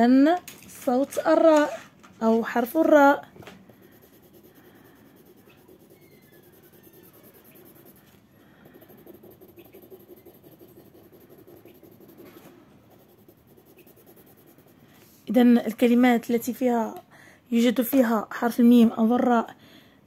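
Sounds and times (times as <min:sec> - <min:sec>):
pencil shading on paper: 0:02.4 - 0:15.1.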